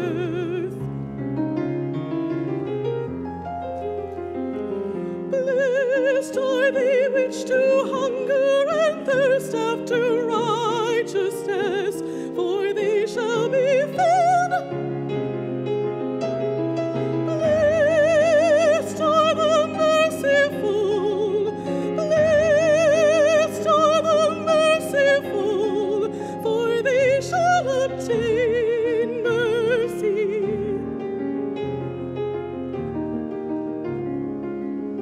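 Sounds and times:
soprano singing with vibrato: 0.0 - 1.0, 4.9 - 15.3, 16.9 - 31.4
piano accompaniment: 0.0 - 35.0.

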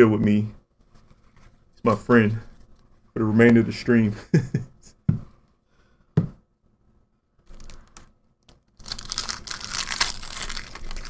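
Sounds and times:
foil wrapper tearing and crinkling: 8.7 - 11.0.

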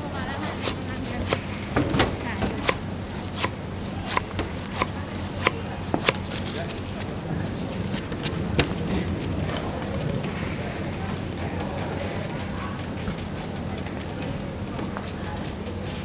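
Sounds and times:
knife chopping pineapple: 0.1 - 8.4.

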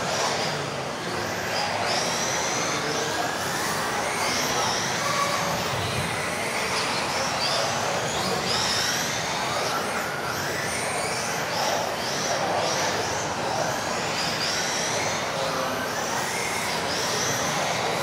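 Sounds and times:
rc car motors whining: 0.0 - 18.0.

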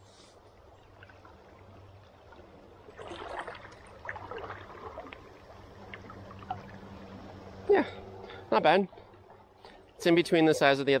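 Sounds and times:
river water running: 0.0 - 11.0
fish splashing: 2.9 - 7.4.

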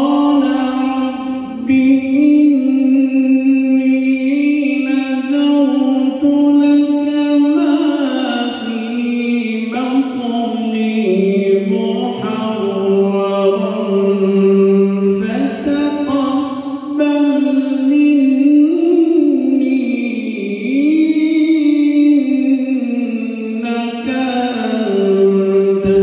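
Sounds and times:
man chanting melodically: 0.0 - 26.0.

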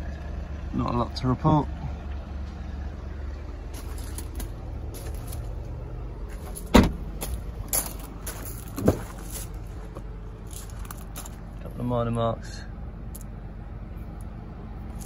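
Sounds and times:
footsteps on gravel: 3.7 - 11.6
car tailgate thud: 6.5 - 7.3, 8.8 - 9.2
car door latch click: 6.7 - 7.0.

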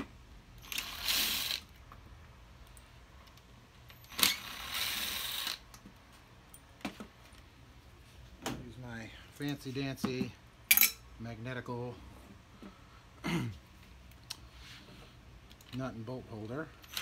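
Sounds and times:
screwdriver grinding and whirring: 0.6 - 1.8, 3.3 - 5.9, 16.8 - 17.0.

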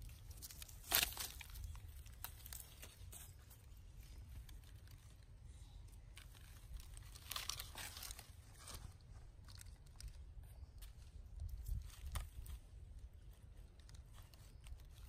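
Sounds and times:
dry leaves rustling and crackling: 0.0 - 5.2, 6.1 - 10.2.

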